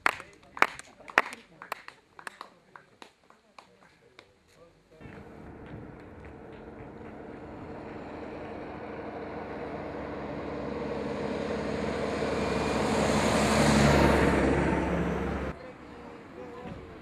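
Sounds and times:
truck passing by: 5.0s - 17.0s.

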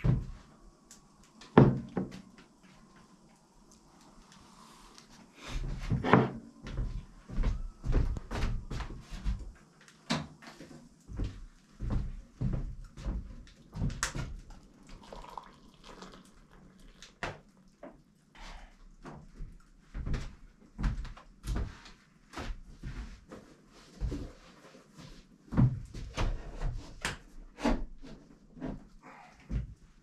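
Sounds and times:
footsteps on wooden floor: 5.7s - 9.6s, 10.6s - 14.4s
water pouring into container: 14.5s - 17.7s.

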